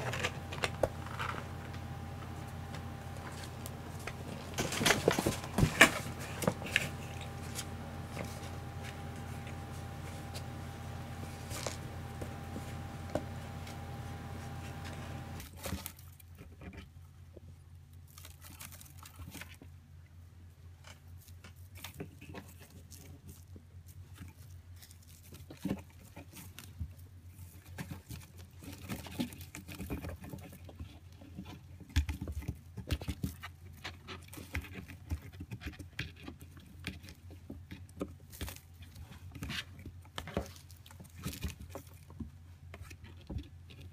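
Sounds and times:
low hum: 0:00.0 - 0:15.4
kittens scratching cardboard box: 0:00.0 - 0:15.8.

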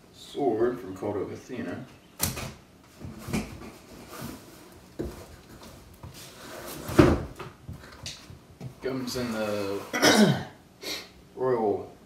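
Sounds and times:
cardboard scraping and rubbing: 0:03.0 - 0:07.2.

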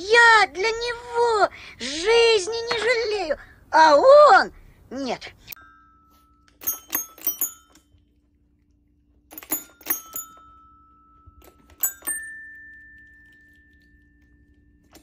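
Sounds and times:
toy xylophone notes: 0:09.3 - 0:14.2.

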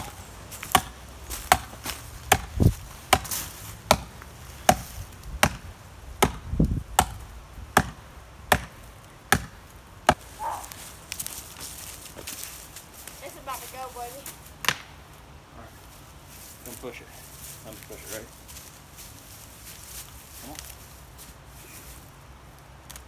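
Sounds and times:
hatchet chopping tree trunk: 0:00.0 - 0:10.3, 0:14.6 - 0:14.9.

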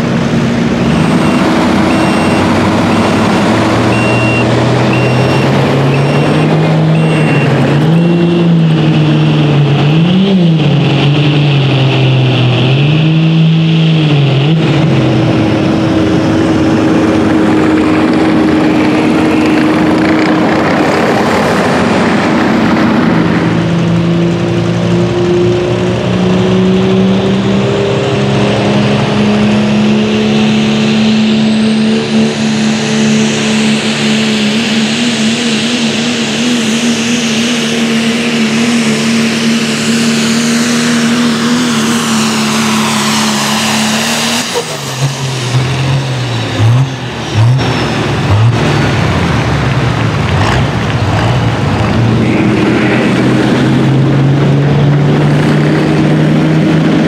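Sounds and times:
diesel truck engine at full throttle: 0:00.0 - 0:57.0
turbo whistle: 0:01.2 - 0:03.2, 0:03.9 - 0:08.5.

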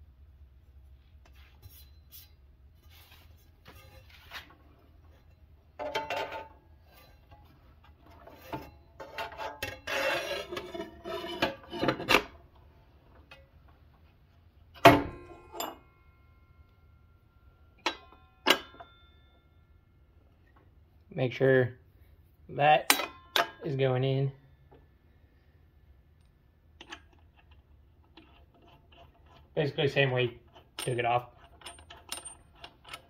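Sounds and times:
metal scraping and clattering: 0:01.5 - 0:12.4, 0:26.9 - 0:33.0
sharp metal clack: 0:17.8 - 0:19.2, 0:22.8 - 0:23.7.

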